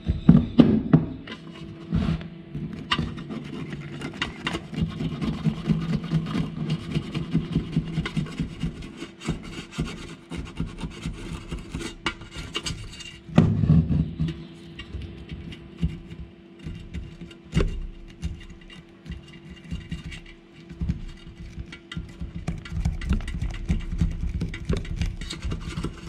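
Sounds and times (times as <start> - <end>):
wire brush scrubbing metal: 2.6 - 26.0.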